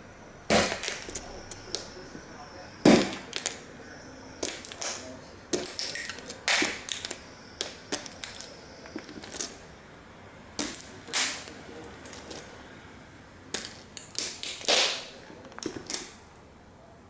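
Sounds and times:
toy cars cracking underfoot: 0.5 - 2.2, 2.9 - 3.6, 4.4 - 9.6, 10.6 - 12.5, 13.5 - 16.2.

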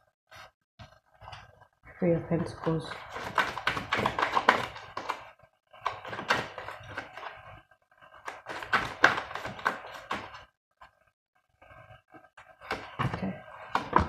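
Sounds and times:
cards being shuffled: 2.9 - 10.5.

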